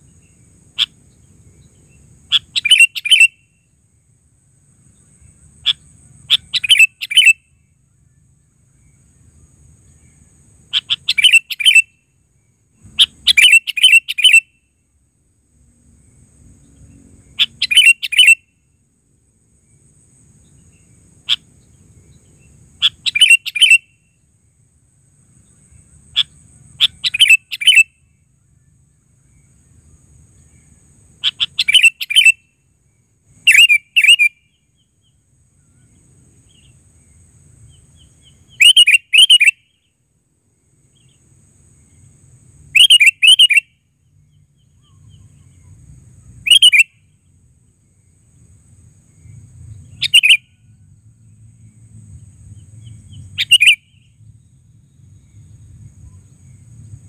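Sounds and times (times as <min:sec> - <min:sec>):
bulbul calling: 0:02.3 - 0:03.4, 0:05.6 - 0:07.5, 0:10.7 - 0:11.9, 0:12.9 - 0:14.5, 0:17.4 - 0:18.4, 0:22.8 - 0:23.9, 0:26.2 - 0:27.9, 0:31.2 - 0:32.4, 0:33.5 - 0:34.4, 0:37.7 - 0:39.7, 0:42.8 - 0:43.7, 0:46.4 - 0:47.0, 0:49.9 - 0:50.5, 0:53.1 - 0:54.1.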